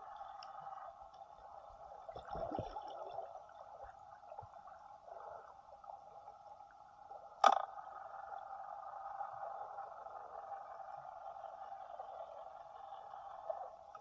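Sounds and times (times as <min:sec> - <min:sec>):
water gurgling: 0:00.0 - 0:06.3.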